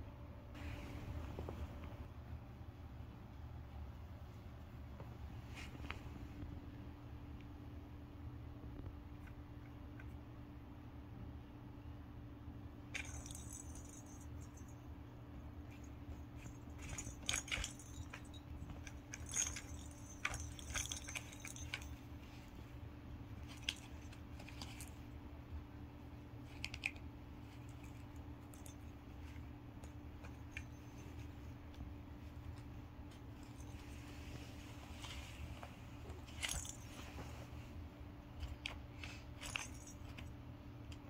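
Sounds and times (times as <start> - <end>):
toy bell ball jingling: 13.0 - 14.9, 15.7 - 22.1.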